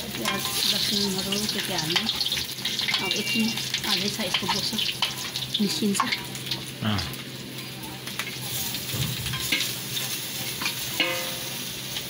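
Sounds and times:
pork sizzling in a wok: 0.0 - 12.0
spoon scraping and clinking on pan: 10.4 - 11.6.

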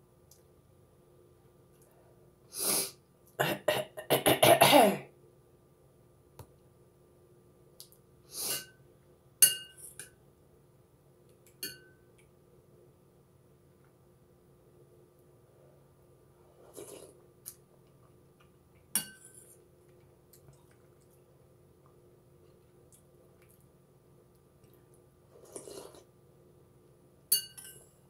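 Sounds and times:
woman coughing: 3.4 - 5.1
spoon clinking against bowl: 9.4 - 10.1, 11.6 - 12.0, 19.0 - 19.4, 27.3 - 27.9.

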